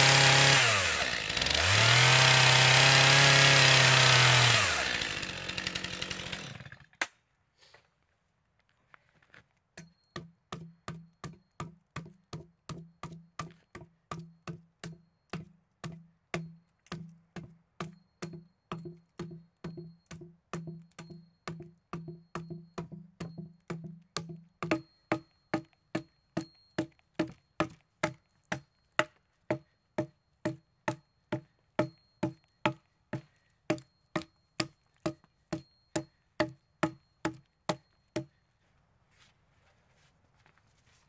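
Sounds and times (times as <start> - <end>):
axe chopping log: 23.7 - 38.3.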